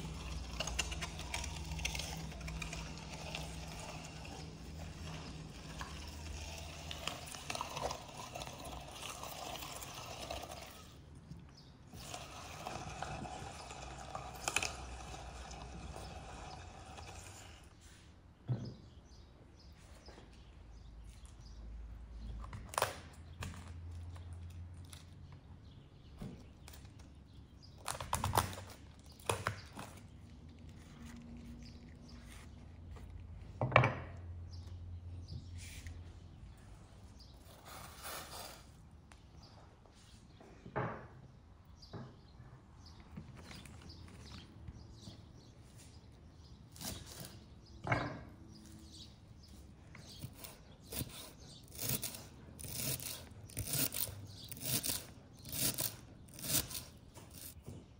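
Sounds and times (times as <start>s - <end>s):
hand-cranked meat grinder turning: 0.0s - 10.8s, 11.9s - 17.7s, 50.0s - 57.6s.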